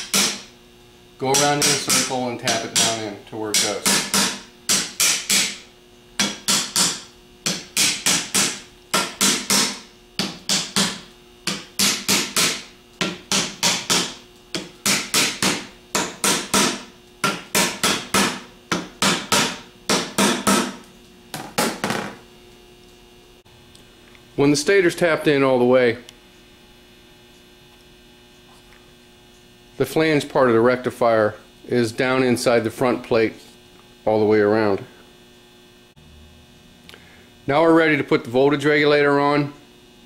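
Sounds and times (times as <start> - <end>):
hammer tapping metal: 1.2 - 5.6, 6.2 - 20.8.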